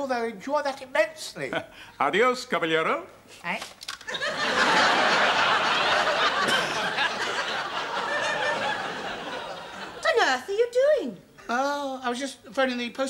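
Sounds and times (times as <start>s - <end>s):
studio audience laughing: 4.1s - 10.2s.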